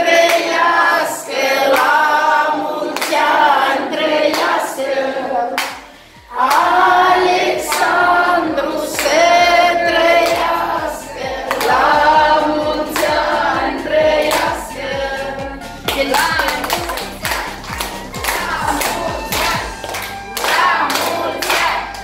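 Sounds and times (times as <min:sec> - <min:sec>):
group singing: 0:00.0 - 0:22.0
steady beat of strokes: 0:05.7 - 0:22.0.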